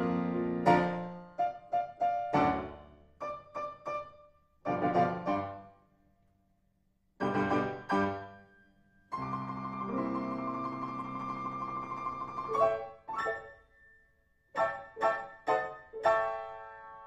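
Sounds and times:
piano notes and chords: 0:00.0 - 0:05.8, 0:07.2 - 0:17.0.

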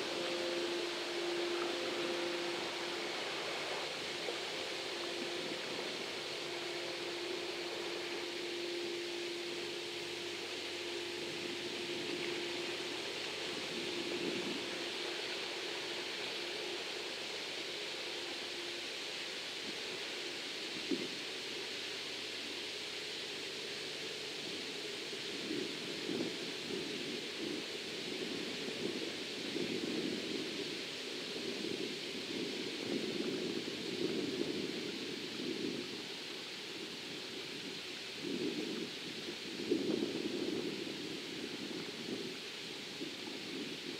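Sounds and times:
bridge machinery humming: 0:00.0 - 0:16.7
steady hiss: 0:00.0 - 0:43.9
wind gusting on microphone: 0:25.4 - 0:43.9.

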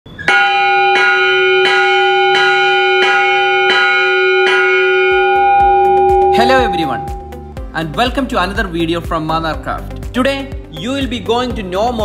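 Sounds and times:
church bell ringing: 0:00.2 - 0:07.5.

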